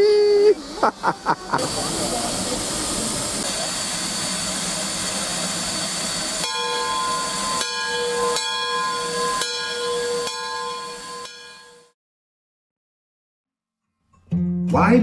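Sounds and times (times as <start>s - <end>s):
steam hissing: 0.0s - 11.2s
steam chime whistle blasts: 4.0s - 11.9s.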